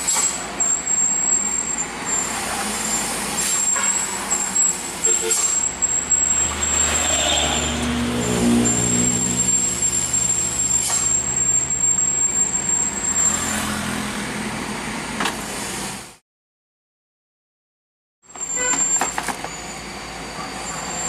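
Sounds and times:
thin high whine: 0:00.0 - 0:13.9
truck engine with road noise: 0:00.0 - 0:16.2, 0:18.3 - 0:21.0.

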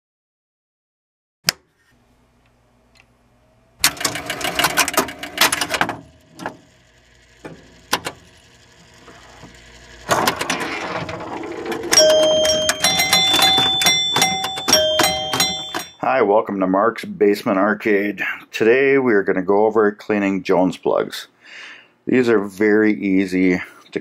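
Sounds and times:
relays and score reels clattering: 0:03.8 - 0:06.6, 0:10.0 - 0:16.0.

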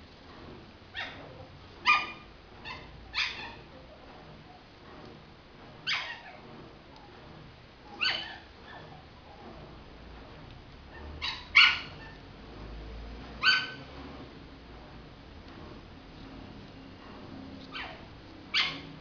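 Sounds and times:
puppies yapping: 0:01.8 - 0:03.7, 0:05.8 - 0:06.4, 0:07.9 - 0:09.5, 0:10.9 - 0:12.2, 0:13.4 - 0:13.8, 0:17.7 - 0:18.9.

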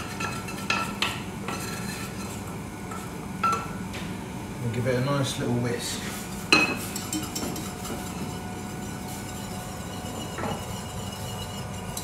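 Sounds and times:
soft whisking: 0:05.7 - 0:12.0
whisk clinking metal saucepan: 0:06.5 - 0:12.0.

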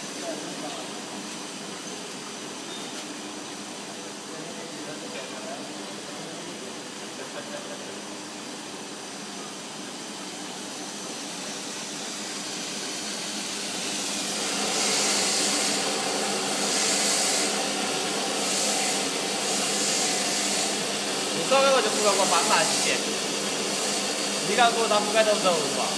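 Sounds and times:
slitting machine humming: 0:06.6 - 0:25.9
high hiss: 0:10.2 - 0:25.9.

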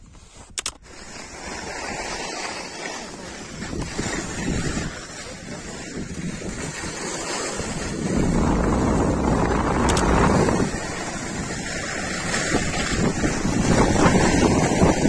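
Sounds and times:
skis sliding over snow: 0:00.0 - 0:15.0
wind buffeting microphone: 0:03.4 - 0:15.0.

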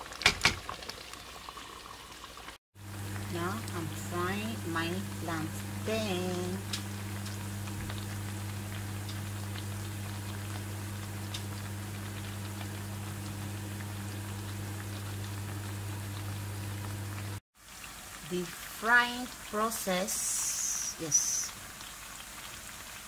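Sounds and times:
crackling sizzle of frying: 0:00.0 - 0:23.0
low hum: 0:02.8 - 0:17.4.

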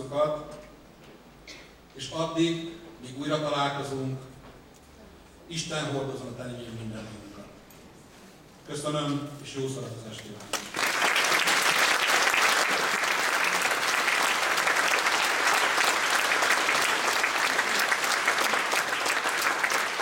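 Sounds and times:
audience applauding: 0:10.5 - 0:20.0.

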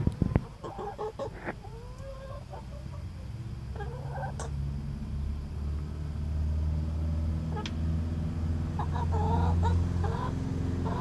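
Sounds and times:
hens clucking: 0:00.0 - 0:04.6, 0:08.6 - 0:11.0
low engine hum: 0:00.0 - 0:11.0.

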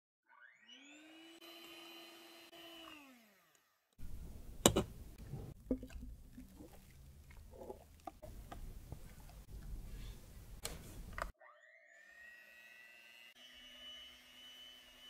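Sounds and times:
milk frother whirring: 0:00.3 - 0:04.9, 0:11.4 - 0:15.0.

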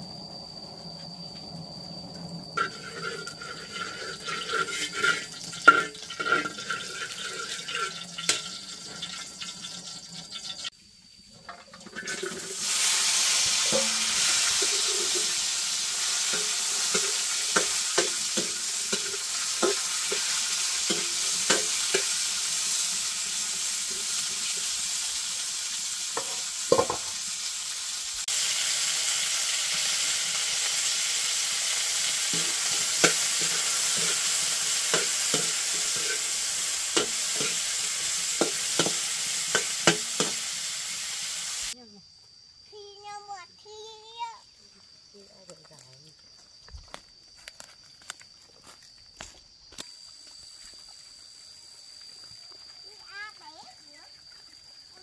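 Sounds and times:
food sizzling in a pan: 0:02.4 - 0:10.8, 0:11.5 - 0:41.8, 0:49.9 - 0:55.0
utensil knocking against pan: 0:26.2 - 0:27.1, 0:38.4 - 0:40.4.

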